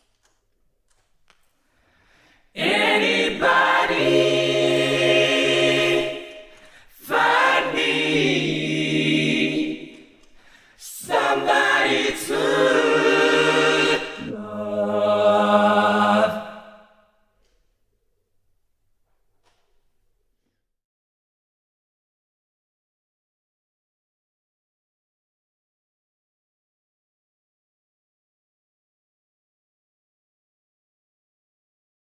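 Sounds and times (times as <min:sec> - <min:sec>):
a cappella choir singing: 0:02.4 - 0:17.2.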